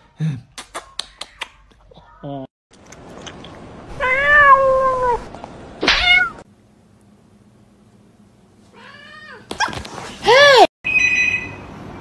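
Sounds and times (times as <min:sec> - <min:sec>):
cat meowing: 0:04.0 - 0:05.2, 0:05.8 - 0:06.4.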